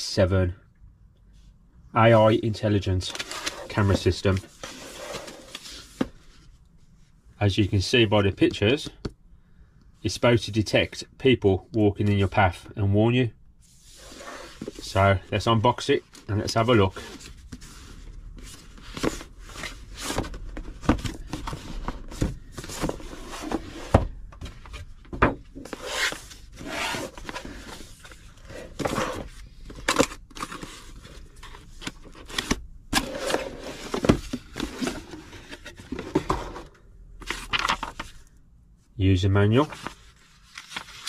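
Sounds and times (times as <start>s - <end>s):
paper manuals handled: 2.9s - 6.1s, 13.9s - 38.4s, 39.4s - 41.0s
cardboard scraping and rustling: 3.1s - 6.2s, 13.7s - 38.2s.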